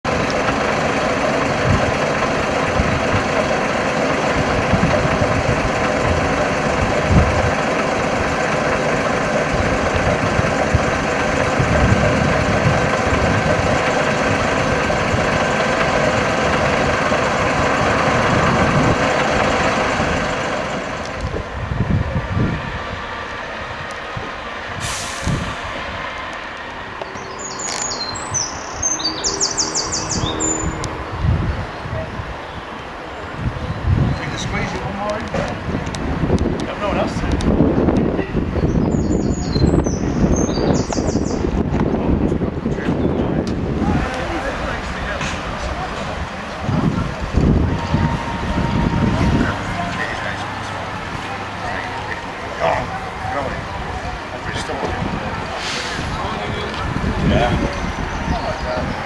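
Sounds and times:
lorry diesel engine rumbling: 0.0 - 59.0
birds chirping: 26.8 - 35.1, 38.5 - 41.6, 44.0 - 59.0.

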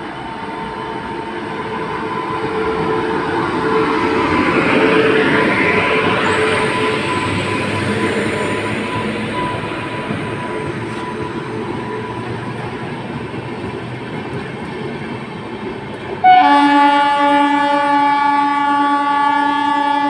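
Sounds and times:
train coaches rolling on rails: 0.0 - 20.0
locomotive horn blast: 16.2 - 20.0.

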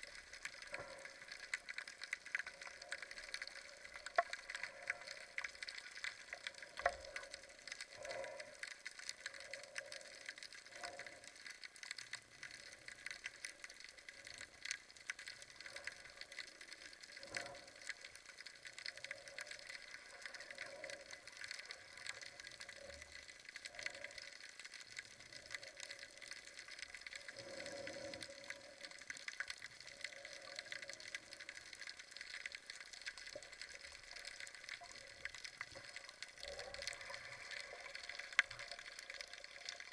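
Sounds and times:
soft whoosh of water: 0.0 - 39.9
underwater hiss: 27.2 - 29.1.

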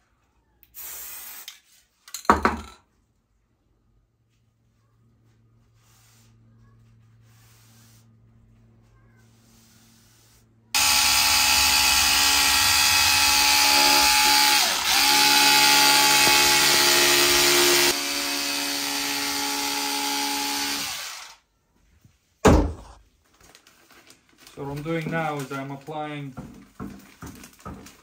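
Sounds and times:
electric fabric cutter whining: 10.8 - 21.4.

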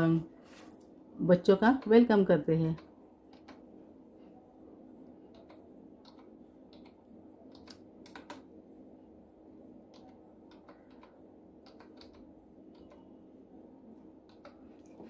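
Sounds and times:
low background hum: 0.0 - 15.0
keyboard key clicks: 5.3 - 8.5, 9.9 - 13.0.

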